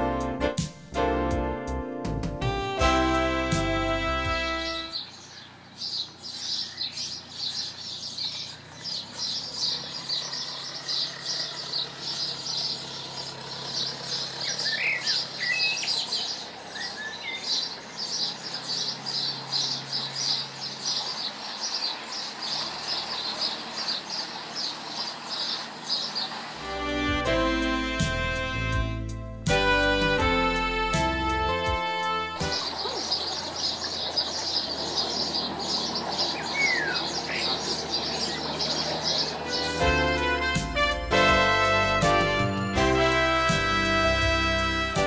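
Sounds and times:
faint boat engine hum: 0:00.0 - 0:45.0
other bird calls: 0:04.3 - 0:26.6, 0:32.0 - 0:41.1.

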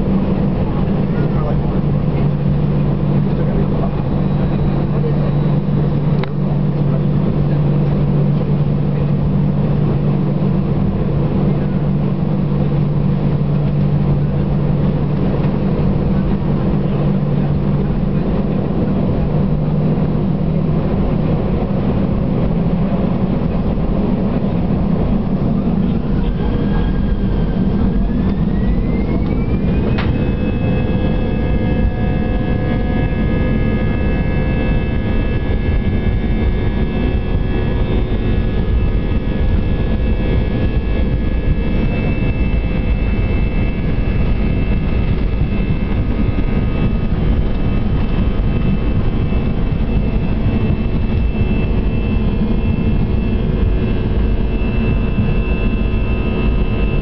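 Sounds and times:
jet engines humming in cabin: 0:00.0 - 0:57.0
jet engines whining: 0:00.0 - 0:57.0
click: 0:06.2 - 0:06.4.

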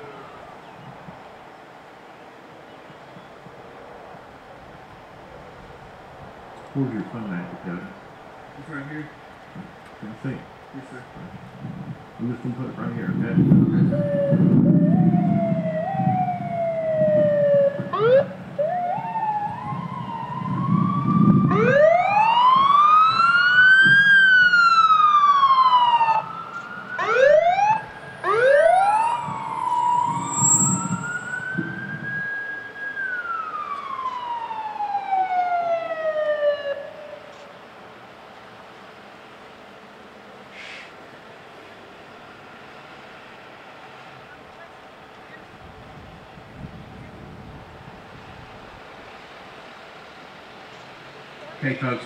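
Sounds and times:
emergency sirens wailing: 0:00.0 - 0:01.2, 0:11.0 - 0:37.7.

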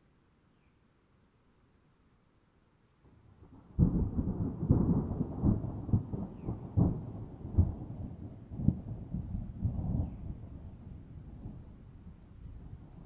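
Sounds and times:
thunder rumbling: 0:03.7 - 0:11.8.

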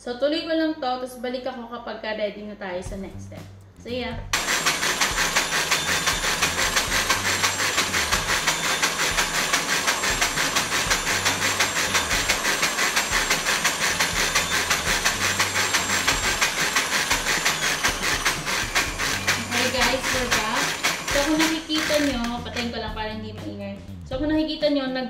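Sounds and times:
stand mixer whisking: 0:04.4 - 0:22.7.

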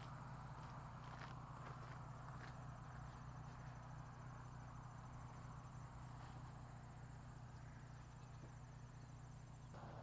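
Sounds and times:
crickets chirping: 0:00.0 - 0:10.0
steady low hum: 0:00.0 - 0:10.0.

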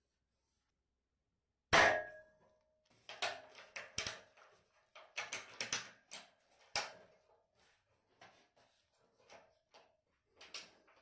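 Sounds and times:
metal tube ringing: 0:01.8 - 0:02.3.

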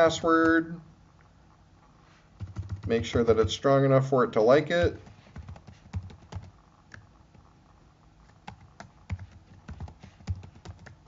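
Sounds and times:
keyboard typing: 0:02.4 - 0:03.6, 0:04.9 - 0:07.5, 0:08.2 - 0:11.0.

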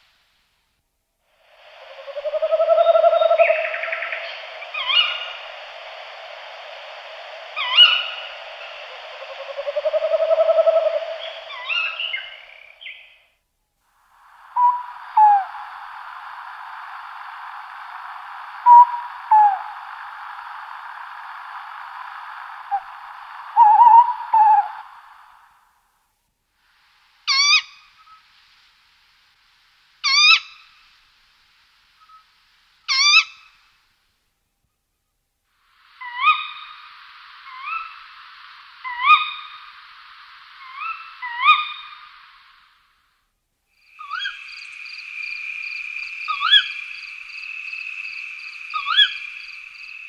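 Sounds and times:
steady hiss: 0:00.0 - 0:50.0
owl hooting: 0:01.4 - 0:13.2, 0:14.1 - 0:25.6, 0:27.3 - 0:28.2, 0:30.0 - 0:30.8, 0:32.9 - 0:33.6, 0:35.8 - 0:42.8, 0:43.8 - 0:50.0.

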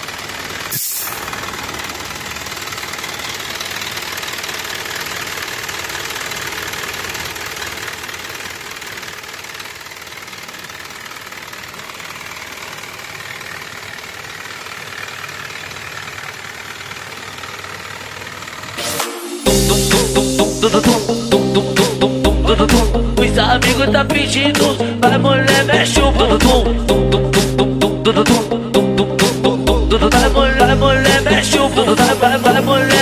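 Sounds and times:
diesel engine idling: 0:00.0 - 0:33.0
sharp burst of noise: 0:00.7 - 0:04.2.

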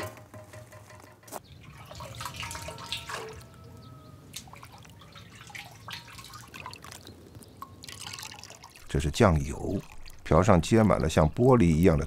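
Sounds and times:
liquid splashing and dripping: 0:01.5 - 0:11.1.

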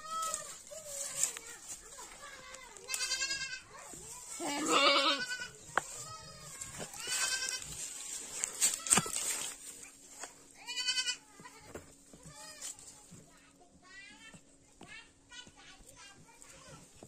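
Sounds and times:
goats bleating: 0:02.2 - 0:03.7, 0:04.3 - 0:09.4, 0:10.6 - 0:12.8.

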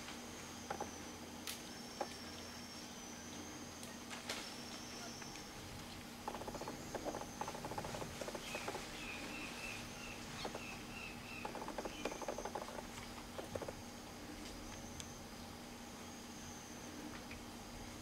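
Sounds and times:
faint steady hum: 0:00.0 - 0:18.0
fast rattling clicks: 0:06.2 - 0:08.9, 0:11.4 - 0:13.8.

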